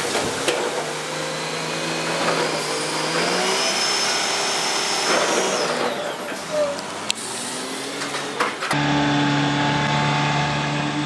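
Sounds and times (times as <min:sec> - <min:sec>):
high hydraulic whine: 0:00.0 - 0:11.0
machine engine running: 0:07.4 - 0:11.0.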